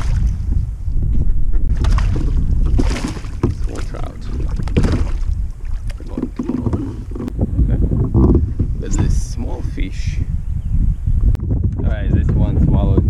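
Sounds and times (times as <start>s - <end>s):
water sloshing around kayak: 0.0s - 9.5s
wind rumble on microphone: 0.0s - 13.0s.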